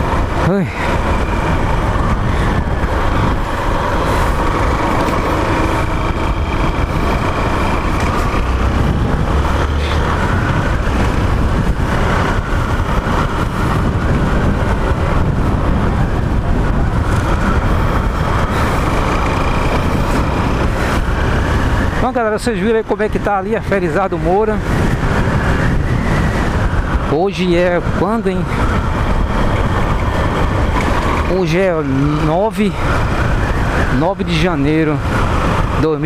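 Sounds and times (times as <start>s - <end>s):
motorcycle engine running: 0.0s - 22.6s
wind rush on microphone: 0.0s - 36.0s.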